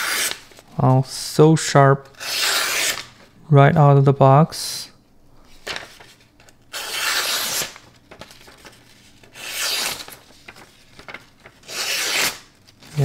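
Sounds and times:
knife blade slicing paper: 0.0 - 0.4, 6.7 - 7.8, 9.3 - 10.2, 11.6 - 13.0.

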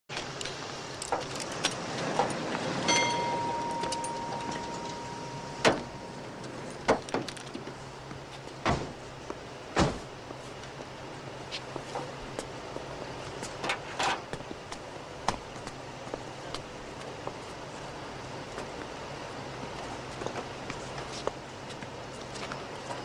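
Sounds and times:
steady beep: 2.9 - 6.4.

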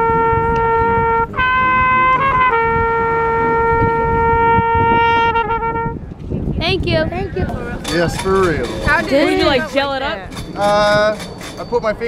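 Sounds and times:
trumpet playing: 0.0 - 6.0.

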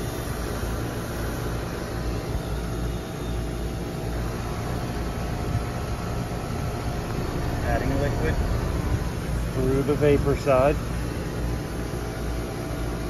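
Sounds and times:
heat pump humming: 0.0 - 13.0.

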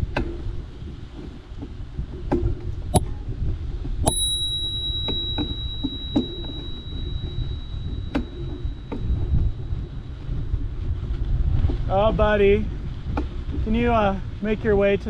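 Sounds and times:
low rumble: 0.6 - 15.0
bicycle bell ringing: 4.0 - 10.5.

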